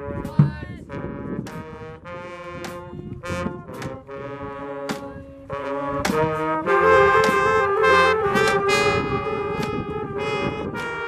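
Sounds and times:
brass band playing: 0.0 - 11.0.

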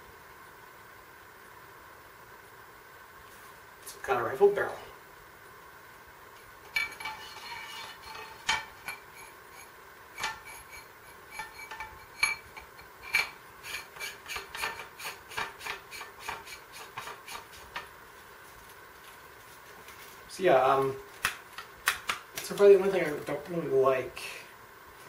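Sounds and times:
threads rasping as barrel is screwed: 6.7 - 17.9.

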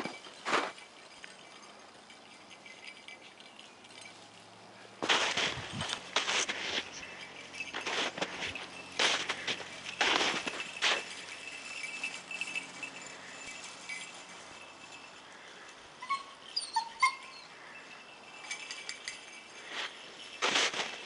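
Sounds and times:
crunch in snow: 0.0 - 0.8, 5.0 - 14.5, 19.6 - 21.0
dog yipping and whimpering: 16.0 - 17.6.

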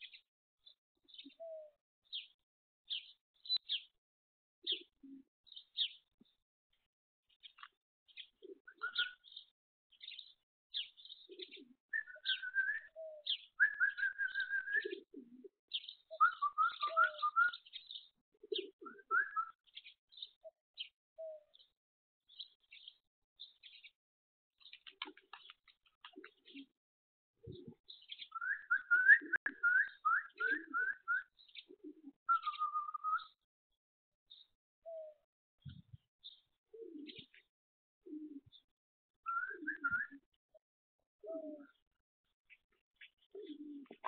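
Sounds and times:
small birds chirping: 0.0 - 4.0, 4.6 - 24.0, 24.6 - 26.8, 27.4 - 33.5, 34.3 - 40.6, 41.2 - 44.0
pigeon cooing: 4.6 - 5.9, 8.4 - 9.4, 11.3 - 17.7, 18.4 - 19.6, 26.0 - 26.7, 27.4 - 33.3, 34.9 - 35.2, 36.7 - 37.4, 38.0 - 38.6, 39.3 - 40.3, 41.2 - 41.8, 43.3 - 44.0.

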